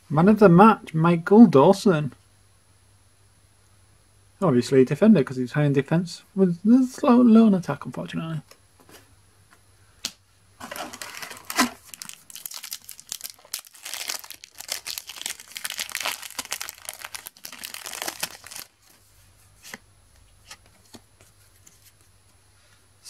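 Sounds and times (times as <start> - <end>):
foil packet tearing and crinkling: 10.6 - 18.8.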